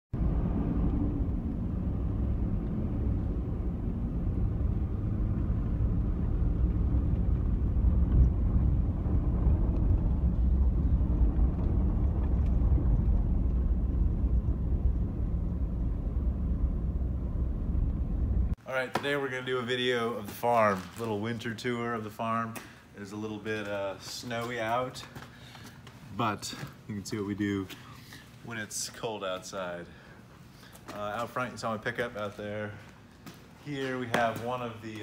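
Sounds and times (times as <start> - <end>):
road noise: 0.1 - 18.6
vehicle engine rumble: 0.1 - 18.6.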